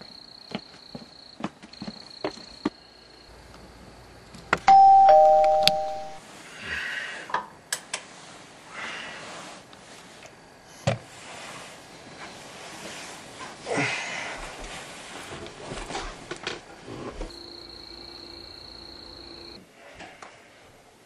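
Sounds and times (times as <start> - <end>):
ding-dong doorbell chime: 4.7 - 6.2.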